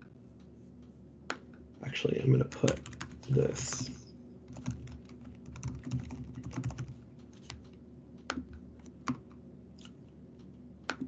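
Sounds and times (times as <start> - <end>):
computer keyboard typing: 2.5 - 9.9.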